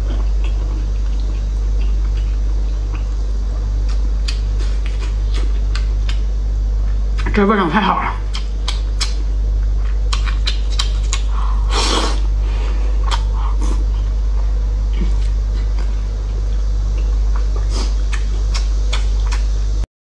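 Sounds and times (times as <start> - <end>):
steady low hum: 0.0 - 19.9
chewing smacks: 3.8 - 6.2, 8.2 - 11.3, 13.0 - 13.5, 17.0 - 19.5
slurp: 11.2 - 12.3.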